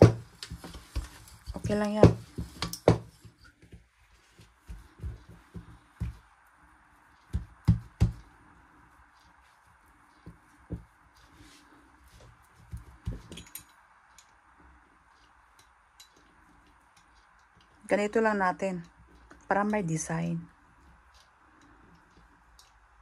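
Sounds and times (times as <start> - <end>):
hands thumping dough: 0.0 - 6.4, 7.2 - 8.3.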